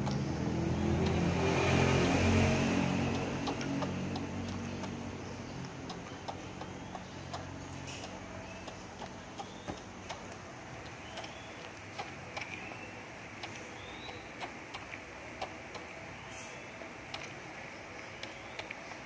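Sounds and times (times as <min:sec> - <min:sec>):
baby monkey suckling from bottle: 0:00.0 - 0:19.0
faint high chirps: 0:12.4 - 0:14.5.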